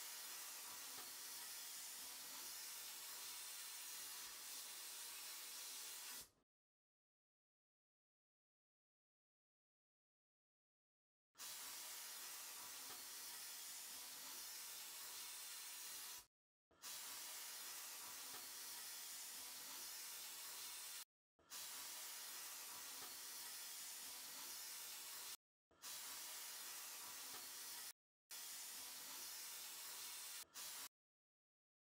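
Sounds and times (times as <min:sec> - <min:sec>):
sandblasting gun hissing: 0:00.0 - 0:06.3, 0:11.4 - 0:30.9.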